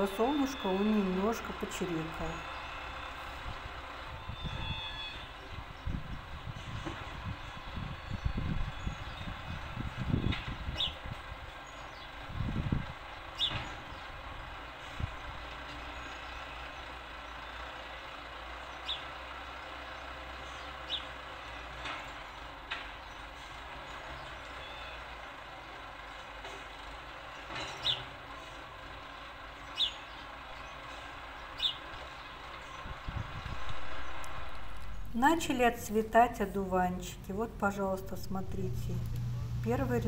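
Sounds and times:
sparrow chirping: 0.0s - 12.5s, 13.2s - 17.6s, 18.6s - 19.1s, 20.0s - 21.2s, 24.1s - 25.0s, 29.6s - 36.4s
trucks and construction machinery: 0.0s - 40.0s.

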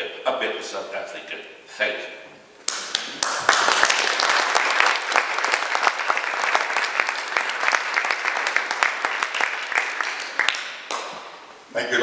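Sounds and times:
audience applauding: 2.7s - 11.4s.

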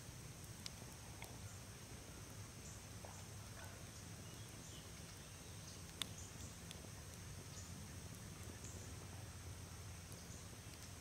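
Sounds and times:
insects droning: 0.0s - 11.0s
faint bird chirps: 1.4s - 9.1s.

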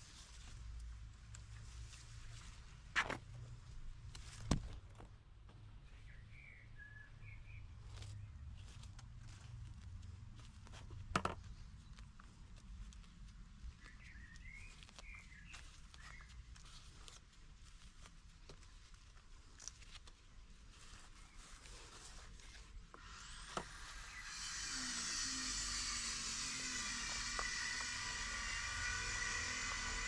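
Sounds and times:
bird chirping: 5.8s - 8.8s, 13.6s - 16.5s
soil rustling in plastic pot: 7.5s - 24.6s.

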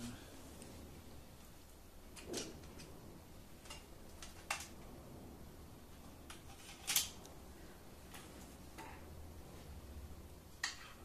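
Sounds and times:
plastic clicks and rustles: 2.1s - 3.0s, 3.6s - 4.9s, 6.0s - 7.3s.

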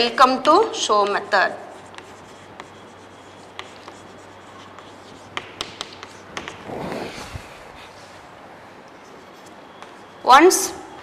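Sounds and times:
chalk tapping on blackboard: 1.0s - 6.6s
chalk scraping stroke: 1.6s - 8.2s.

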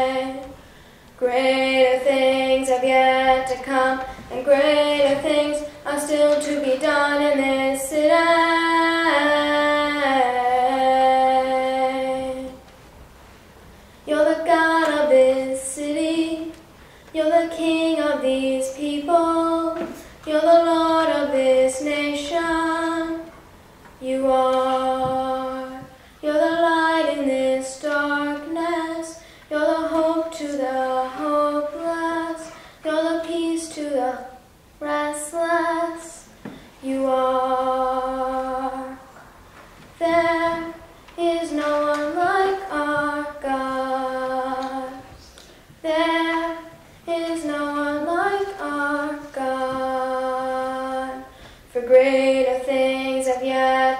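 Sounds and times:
singer breathing: 0.6s - 1.2s, 13.7s - 14.1s, 16.8s - 17.2s, 25.9s - 26.2s, 29.2s - 29.5s, 32.5s - 32.8s, 51.3s - 51.7s.

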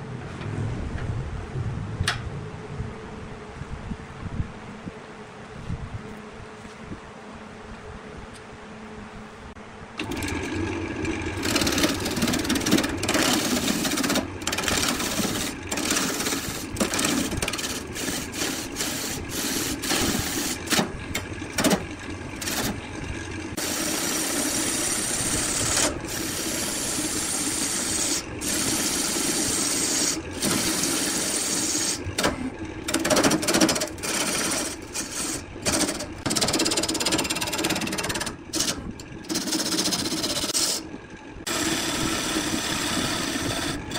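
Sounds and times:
turning tool cutting wood: 10.0s - 43.9s
wood lathe running: 10.0s - 43.9s.

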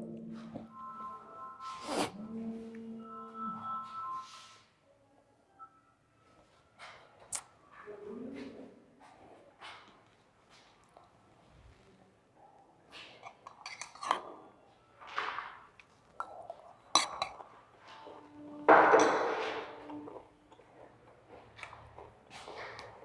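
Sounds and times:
objects clinking and knocking: 17.0s - 20.6s.

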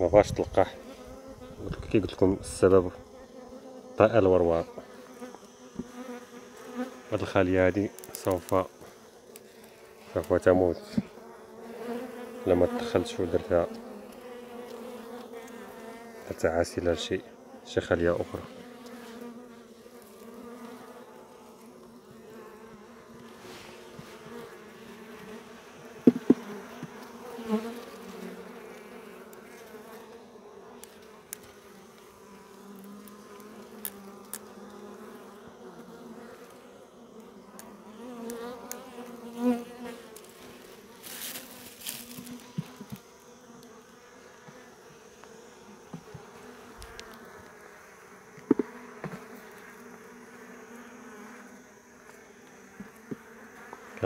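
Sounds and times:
bees buzzing: 0.0s - 54.0s
knocks on wooden hive: 26.0s - 26.9s, 48.4s - 49.2s.

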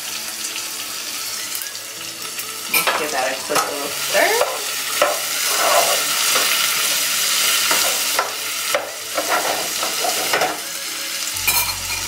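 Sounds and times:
potatoes sizzling in fat: 0.0s - 12.0s
spatula scraping pan: 2.8s - 10.6s.

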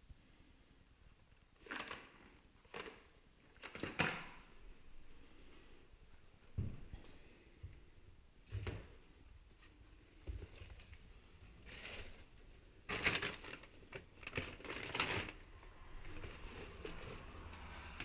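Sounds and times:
footsteps soft thuds: 6.5s - 7.1s
paper and plastic crunching underfoot: 11.6s - 18.0s.

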